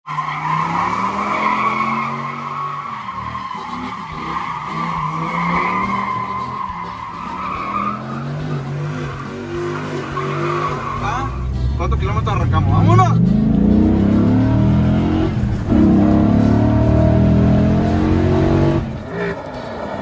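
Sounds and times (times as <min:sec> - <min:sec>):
tyres squealing on concrete: 0:00.1 - 0:11.9
engine at high revs: 0:11.6 - 0:19.6.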